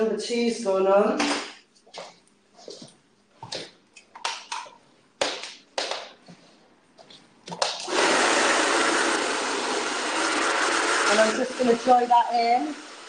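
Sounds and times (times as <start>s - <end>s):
hair dryer blowing: 7.9s - 13.0s.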